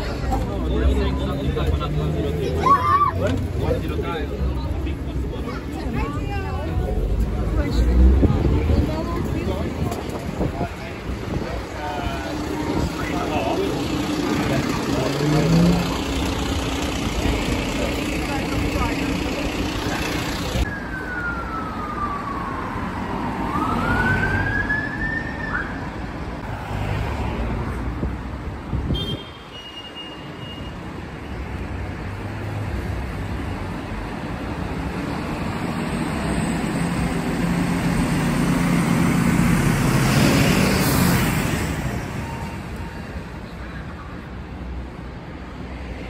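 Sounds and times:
fire engine engines running: 0.0 - 26.5, 30.9 - 46.0
fire engine driving past: 6.1 - 25.6, 33.7 - 43.5
siren sweep: 20.6 - 25.9.

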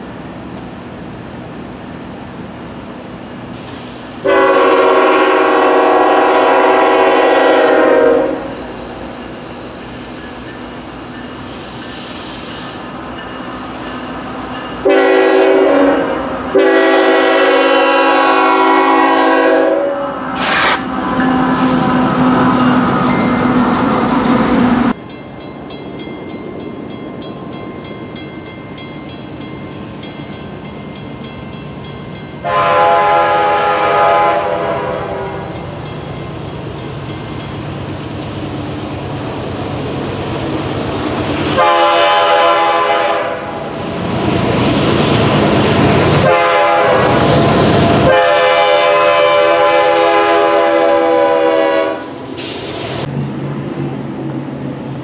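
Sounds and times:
train rumble: 0.0 - 55.0
locomotive air horn blasts: 4.2 - 8.7, 14.8 - 22.9, 32.4 - 35.7, 41.6 - 43.7, 46.2 - 52.2.

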